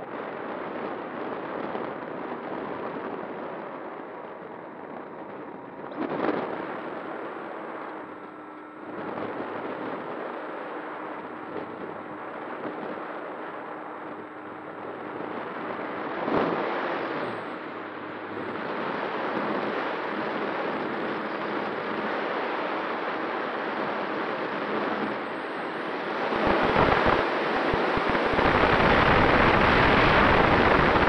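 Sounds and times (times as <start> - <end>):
airflow rushing over microphone: 0.0 - 31.0
propeller motor hum: 23.8 - 31.0.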